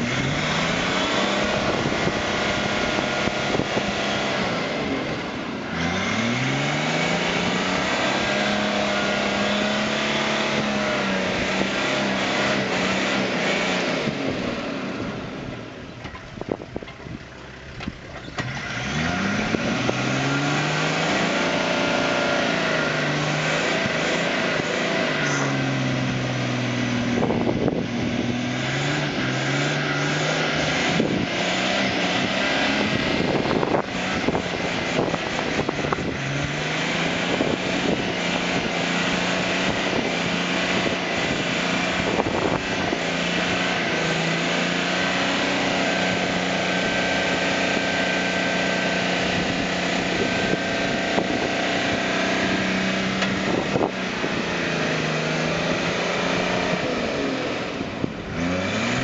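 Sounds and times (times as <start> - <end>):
vehicle engine revving hard: 0.0 - 15.9, 18.3 - 59.0.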